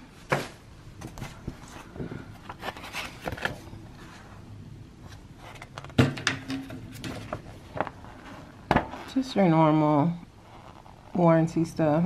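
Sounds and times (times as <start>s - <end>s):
paper rustling: 1.1s - 4.4s, 5.0s - 9.1s.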